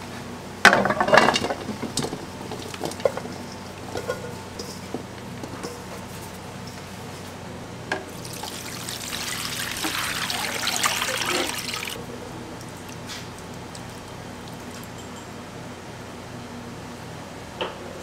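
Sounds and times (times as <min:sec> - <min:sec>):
liquid splashing and trickling: 0:08.1 - 0:12.0.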